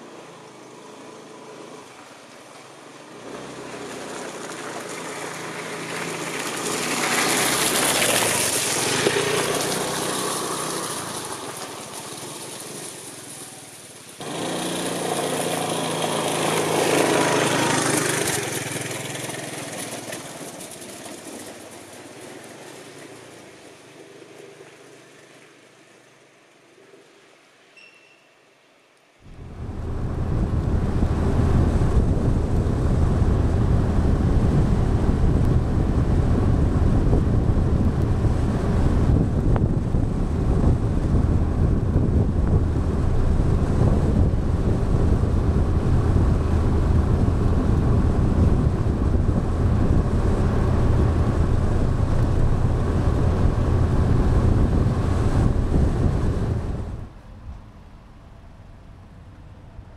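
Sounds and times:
scooter engine cruising: 0:00.0 - 0:26.1, 0:29.2 - 0:59.9
wind rushing on microphone: 0:29.2 - 0:57.7.

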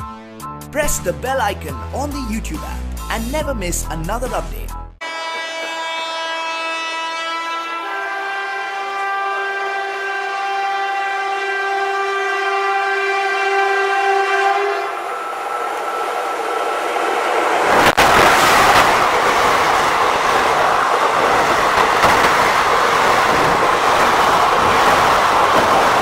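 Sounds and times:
locomotive air horn blast: 0:05.0 - 0:15.1
train rumbling past: 0:05.0 - 0:26.0.

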